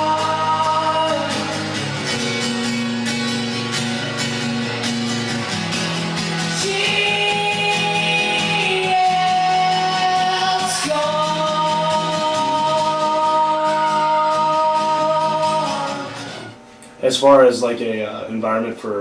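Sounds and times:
man singing: 0.0 - 1.6, 6.6 - 16.4
acoustic guitar: 0.0 - 17.3.

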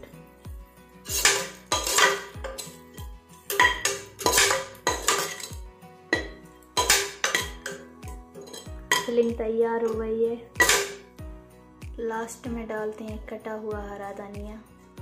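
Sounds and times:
background music with beat: 0.0 - 15.0
spatula scraping a pot: 1.0 - 9.1.

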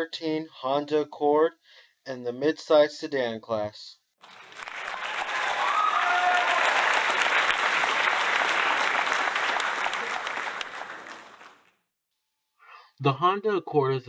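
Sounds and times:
crowd applauding: 4.2 - 11.7.

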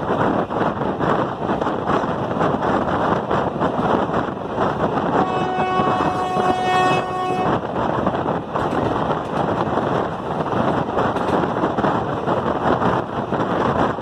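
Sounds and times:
moving train rumble: 0.0 - 14.0
train horn blast: 4.8 - 7.7.

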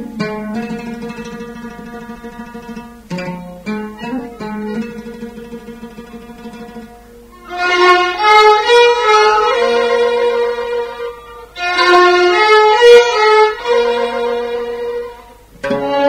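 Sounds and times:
violins playing a melody: 3.9 - 16.0.

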